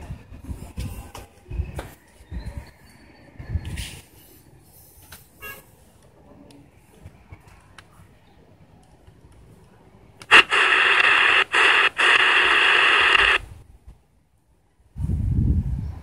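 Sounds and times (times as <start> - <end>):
loud radio static: 10.3 - 13.5
faint radio hiss: 10.3 - 13.6.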